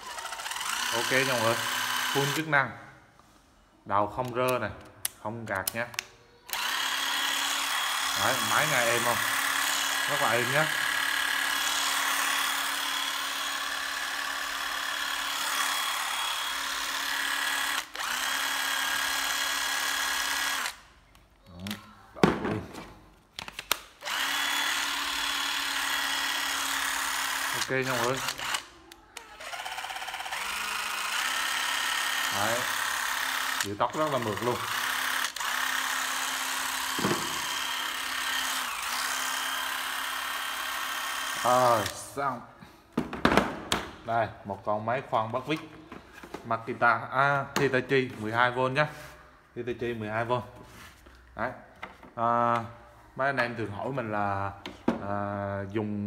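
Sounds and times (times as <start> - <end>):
cordless drill motor whine: 0.0 - 2.5, 6.5 - 20.8, 24.0 - 42.0.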